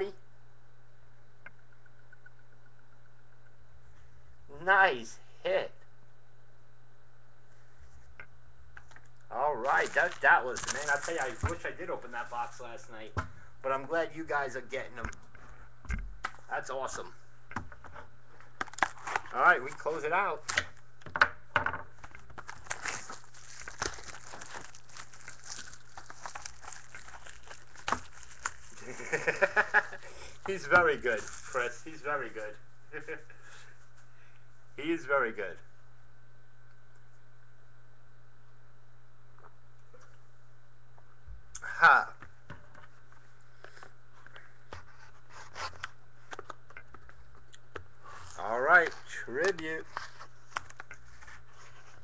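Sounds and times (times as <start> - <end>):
steady electrical hum: 0.0 - 52.0
plastic packaging crinkling: 9.0 - 12.8, 18.5 - 20.8, 22.0 - 33.1.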